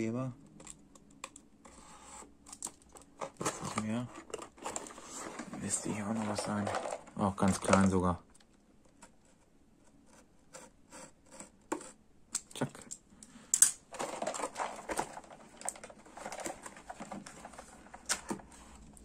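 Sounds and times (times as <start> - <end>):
plastic packaging crinkling: 2.6 - 8.2, 13.9 - 18.4.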